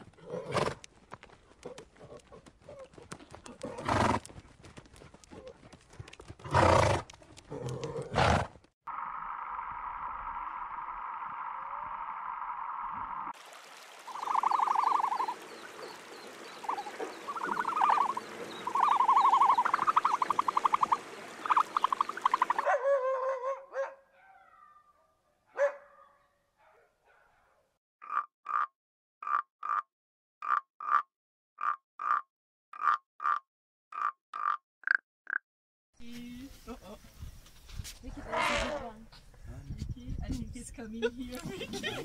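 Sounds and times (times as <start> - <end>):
frogs croaking: 8.9 - 13.3, 14.0 - 22.6, 28.0 - 31.0, 34.0 - 35.4.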